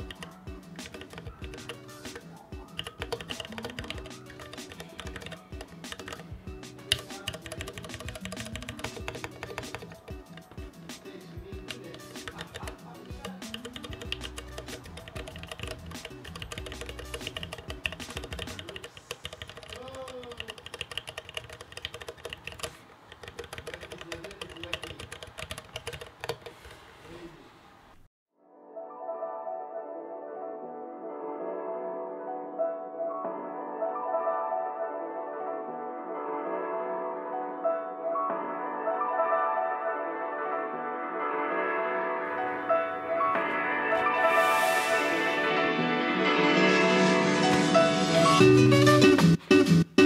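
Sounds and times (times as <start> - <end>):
mechanical keyboard keys clacking: 0.0 - 10.7, 11.6 - 26.8
background music: 0.0 - 26.2, 28.4 - 50.0.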